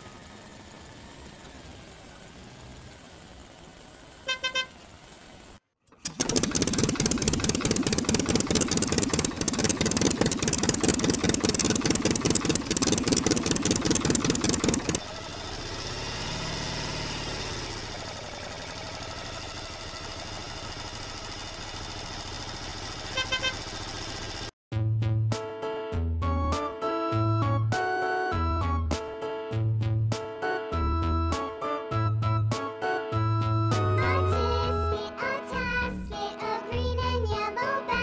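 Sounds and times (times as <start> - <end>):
engine hum rising and falling: 0.0 - 24.5
toy engine clatter: 5.9 - 15.0.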